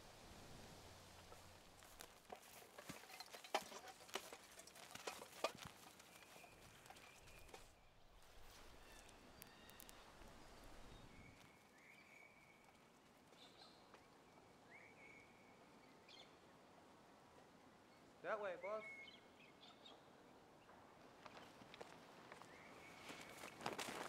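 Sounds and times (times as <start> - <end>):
thin whistling bird calls: 18.6 - 19.9.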